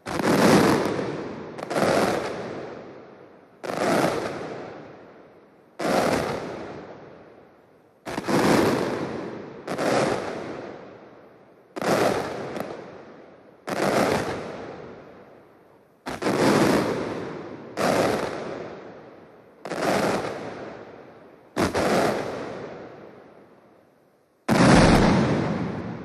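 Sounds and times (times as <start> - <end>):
firecracker volleys: 0.0 - 2.7, 5.8 - 6.6, 11.8 - 12.8, 16.0 - 18.7, 21.5 - 22.7, 24.5 - 26.0.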